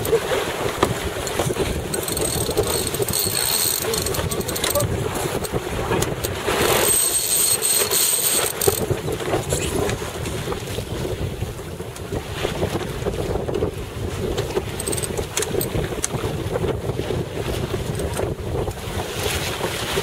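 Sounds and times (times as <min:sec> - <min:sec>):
wind buffeting microphone: 0:00.0 - 0:06.9, 0:08.2 - 0:20.0
water washing along hull: 0:00.0 - 0:20.0
small clicks and knocks: 0:01.2 - 0:08.9, 0:14.5 - 0:16.2, 0:17.9 - 0:18.3.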